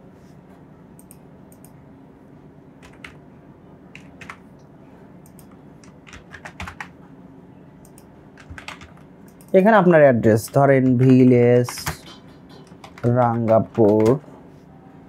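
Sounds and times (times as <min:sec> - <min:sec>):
low steady background hum: 0:00.0 - 0:15.0
keyboard typing: 0:02.8 - 0:03.2, 0:03.9 - 0:04.4, 0:05.2 - 0:07.0, 0:07.8 - 0:14.3.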